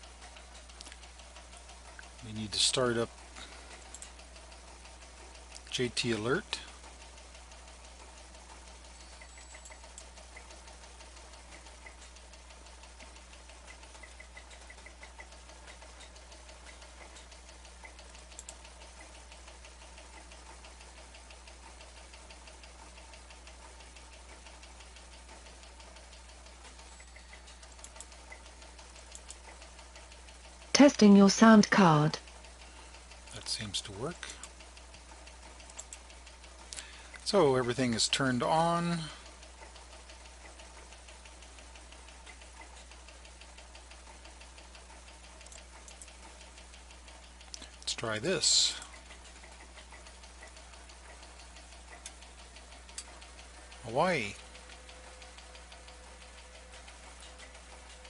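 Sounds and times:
faint fast ticking: 0.0 - 58.0
low hum: 0.0 - 58.0
computer mouse clicks: 3.4 - 4.2, 13.7 - 19.6, 26.7 - 30.1, 34.4 - 37.2, 45.1 - 47.9.

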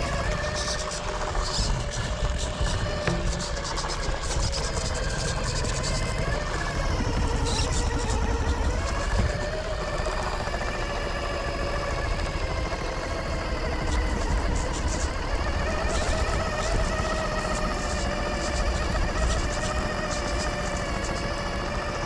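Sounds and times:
tyres ticking and scraping on stone: 0.0 - 10.6
electric motor and gearbox whining: 0.0 - 22.0.

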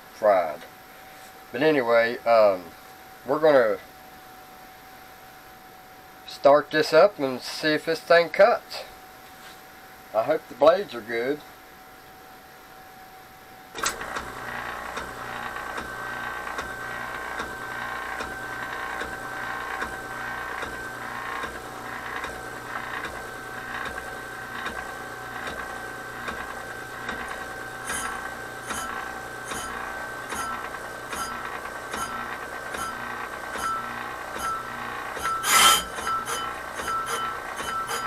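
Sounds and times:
brake lathe motor churning: 13.8 - 38.0
cutting bit clinking on metal: 27.9 - 38.0.

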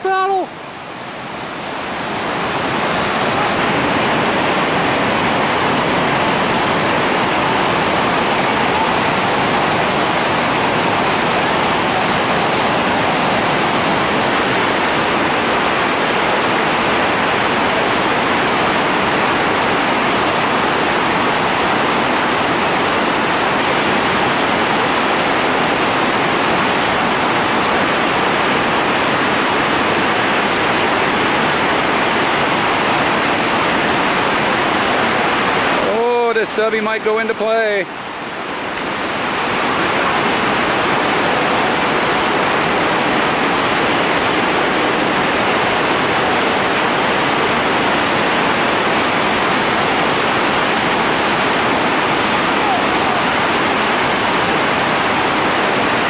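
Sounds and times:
whitewater rapids rushing: 0.0 - 56.0.

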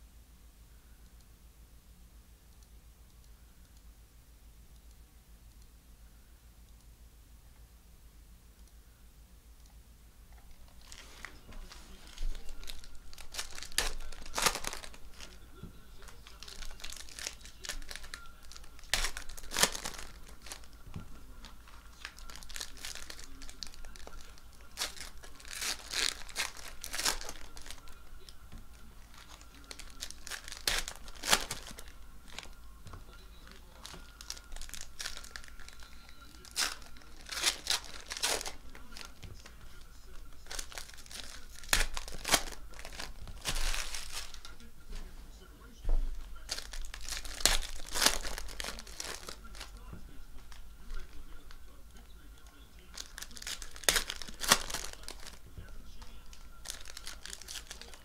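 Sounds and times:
foil wrapper tearing and crumpling: 10.7 - 28.4, 29.0 - 32.6, 33.4 - 39.6, 40.2 - 44.6, 46.2 - 51.2, 52.8 - 58.0.

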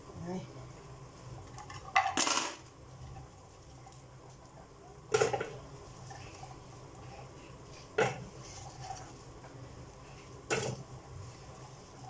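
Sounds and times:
kitchenware clattering: 1.7 - 2.7.

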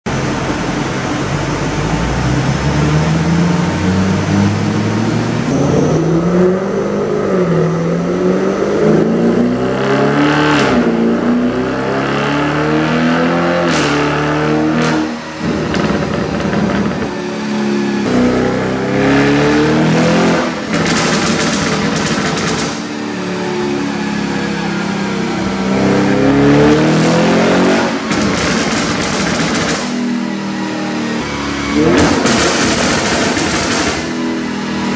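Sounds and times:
car engine revving: 0.2 - 34.9
exhaust pops and bangs: 14.8 - 17.2, 20.6 - 22.9, 28.0 - 30.0, 31.8 - 34.2
exhaust crackles: 20.4 - 22.9, 27.8 - 30.0, 31.8 - 34.1.

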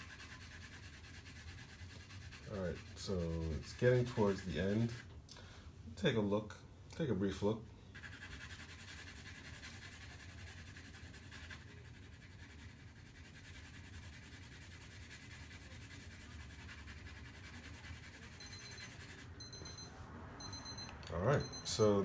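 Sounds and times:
pencil scratching on paper: 0.0 - 5.1, 7.9 - 19.8.

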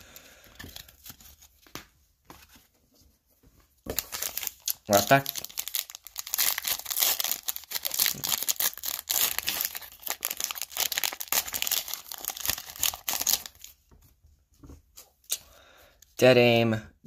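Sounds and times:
foil wrapper tearing and crinkling: 3.9 - 13.7.

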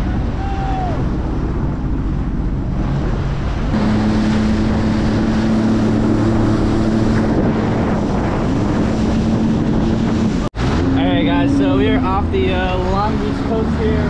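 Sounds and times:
jet ski engine: 0.0 - 14.0
water rushing and splashing: 0.0 - 14.0
wind buffeting microphone: 0.0 - 14.0.

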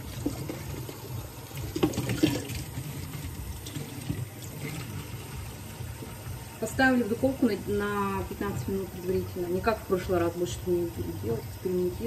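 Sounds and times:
water running from tap: 0.0 - 12.0.

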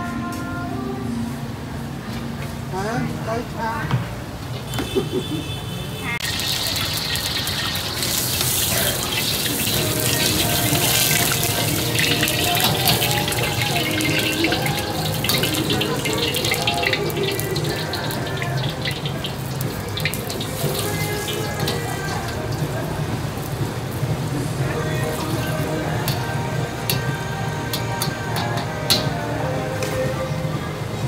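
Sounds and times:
oil sizzling in a wok: 6.2 - 30.0
gas burner rumble: 6.2 - 31.0.

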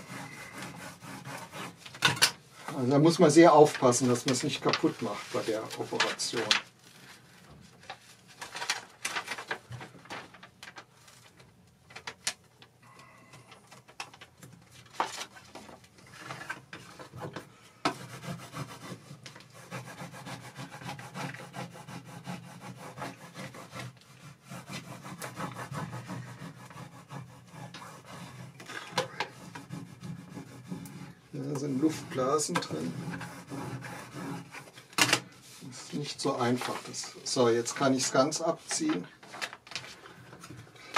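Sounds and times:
rubbing and scraping on film: 0.0 - 12.4, 13.0 - 40.9
plastic film crackling: 3.7 - 12.4.

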